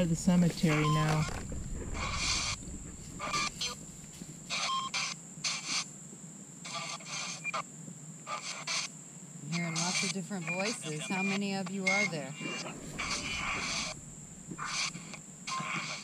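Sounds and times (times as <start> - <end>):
choppy bursts of static: 0.0 - 5.6, 9.6 - 16.0
faint high whine: 0.0 - 7.7, 9.0 - 16.0.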